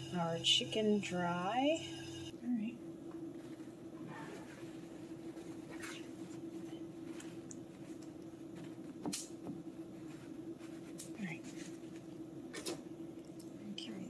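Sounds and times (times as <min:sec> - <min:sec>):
steady low hum: 0:00.0 - 0:14.0
paper towels rustling: 0:03.3 - 0:12.8.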